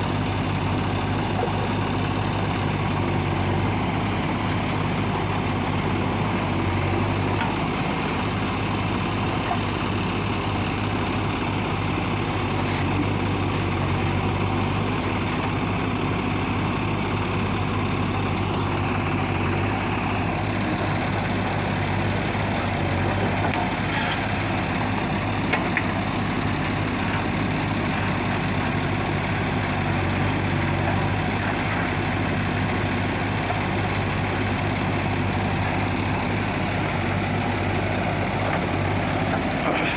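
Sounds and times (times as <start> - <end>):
diesel engine running: 0.0 - 39.9
backhoe digging soil: 17.9 - 28.0, 28.7 - 39.9.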